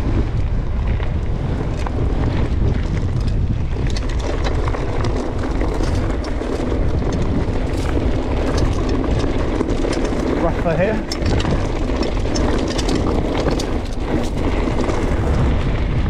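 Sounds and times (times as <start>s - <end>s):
bike tyres rumbling on dirt track: 0.0s - 16.0s
clicks and knocks of stones: 0.0s - 16.0s
wind buffeting microphone: 0.0s - 16.0s.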